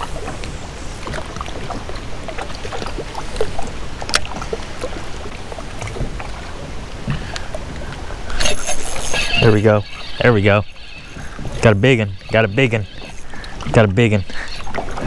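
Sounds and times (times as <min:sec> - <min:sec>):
waves lapping against hull: 0:00.0 - 0:15.0.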